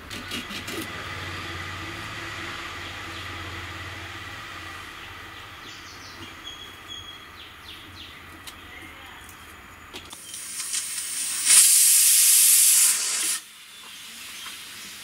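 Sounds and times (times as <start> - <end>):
pressure cooker steam whistle: 10.2 - 13.4.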